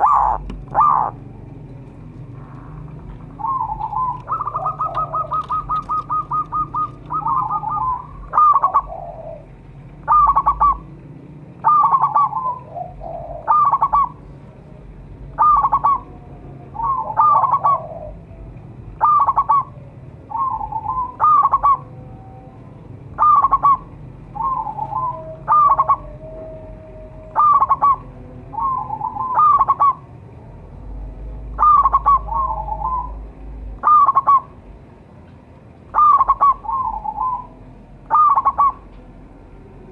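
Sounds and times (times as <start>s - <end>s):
dove cooing: 0.0s - 1.4s, 2.0s - 11.0s, 11.6s - 14.5s, 15.2s - 18.3s, 19.0s - 22.1s, 23.1s - 30.2s, 31.5s - 34.6s, 35.9s - 39.0s.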